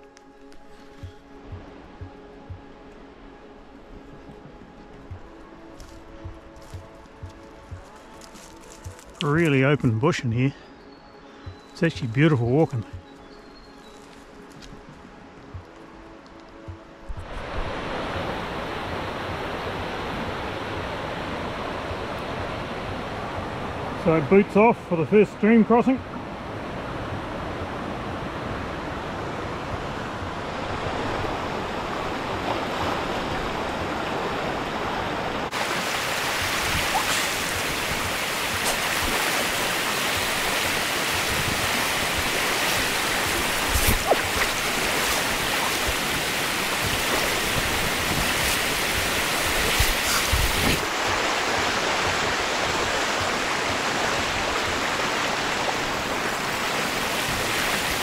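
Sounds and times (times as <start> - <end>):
creek rushing over stones: 5.7 - 10.2, 30.4 - 58.0.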